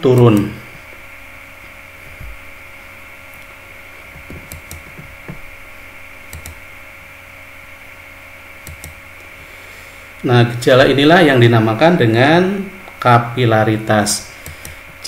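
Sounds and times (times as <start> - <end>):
steady electrical hum: 0.0 - 15.0
low thumps: 2.0 - 2.6, 4.1 - 5.6.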